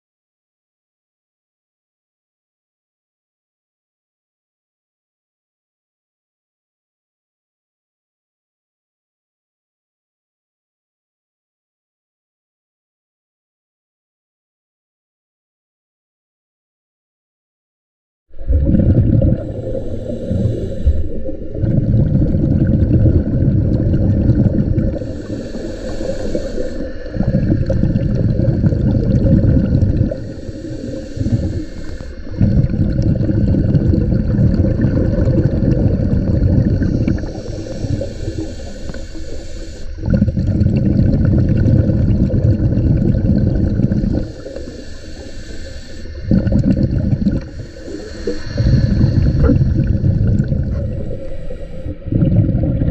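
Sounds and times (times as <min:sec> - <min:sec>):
exhaled bubbles rumbling: 0:18.3 - 0:45.6, 0:46.2 - 0:52.9
regulator inhale hiss: 0:19.4 - 0:21.6, 0:24.7 - 0:28.8, 0:29.8 - 0:33.7, 0:36.5 - 0:40.3, 0:43.9 - 0:46.5, 0:47.4 - 0:52.1.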